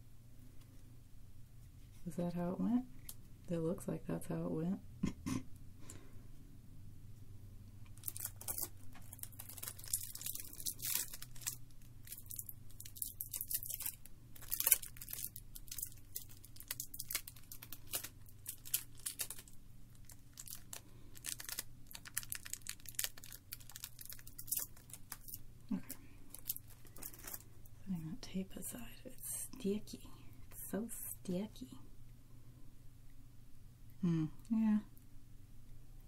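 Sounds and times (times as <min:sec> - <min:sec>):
adhesive tape crackling and tearing: 0:08.0 - 0:25.4, 0:26.3 - 0:27.4.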